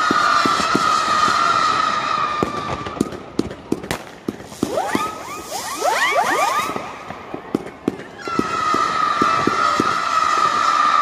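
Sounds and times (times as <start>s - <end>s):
firework pops and bangs: 0.0s - 1.8s, 2.4s - 5.2s, 6.6s - 10.8s
rising whistling fireworks: 0.0s - 11.0s
firework whistle: 3.9s - 11.0s.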